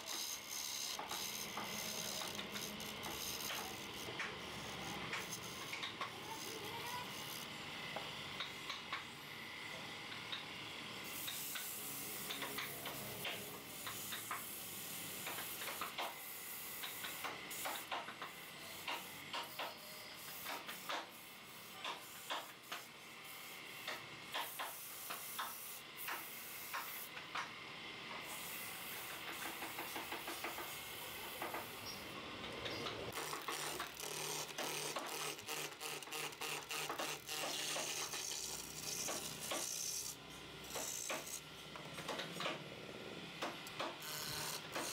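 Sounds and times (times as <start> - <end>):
turning tool scratching wood: 0.0 - 8.8, 28.2 - 32.0, 32.7 - 42.6, 43.4 - 44.9.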